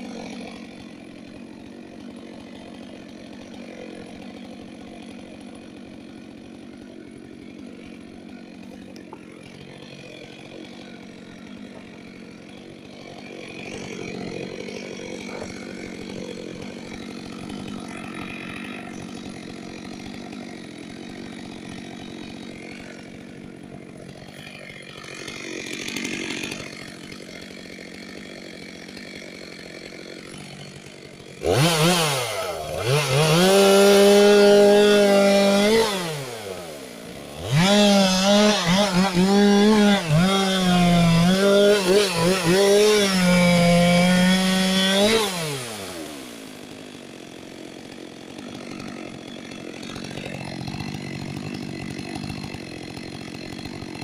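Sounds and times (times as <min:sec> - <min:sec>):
chainsaw revving: 0:00.0 - 0:54.0.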